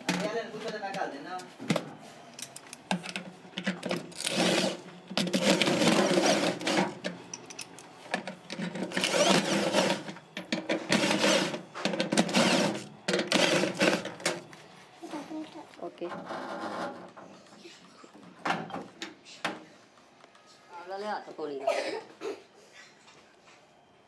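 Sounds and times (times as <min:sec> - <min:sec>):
electric drill running: 0:04.2 - 0:06.9, 0:08.9 - 0:10.1, 0:10.9 - 0:11.6, 0:12.2 - 0:14.0.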